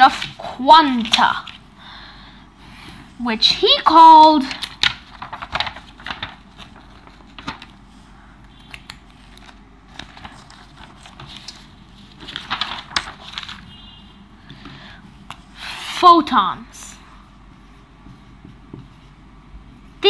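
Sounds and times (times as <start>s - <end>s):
paper rustling: 0.0s - 1.7s, 3.4s - 15.7s.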